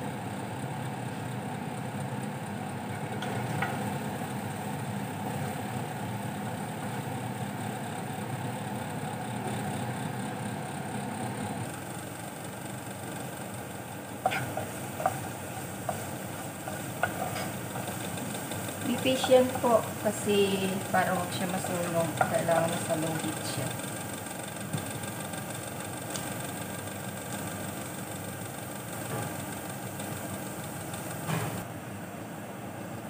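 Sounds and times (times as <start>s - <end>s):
exhaust fan humming: 0.0s - 33.0s
onions sizzling in oil: 1.0s - 31.6s
wooden spoon clicking on pan: 14.3s - 19.6s.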